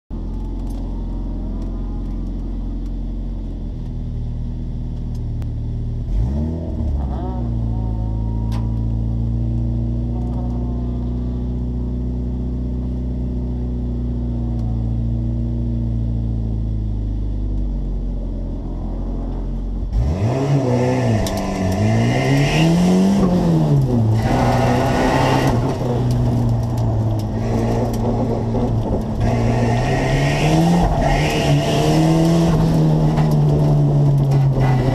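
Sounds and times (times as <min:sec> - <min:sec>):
car engine idling: 0:00.1 - 0:06.1, 0:06.8 - 0:20.2, 0:20.8 - 0:34.9
car accelerating hard: 0:18.4 - 0:34.9.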